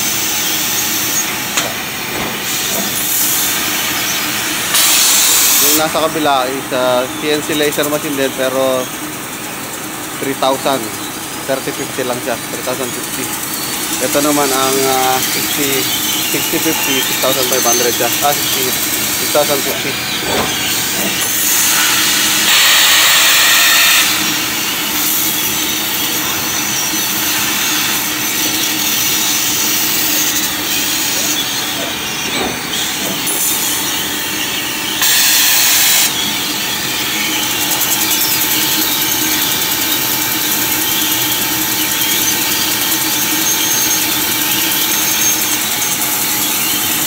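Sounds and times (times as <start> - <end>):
laser cutter hissing: 0.0 - 47.0
faint machine hum: 5.5 - 47.0
high hiss bursts: 14.7 - 25.4, 32.9 - 36.2.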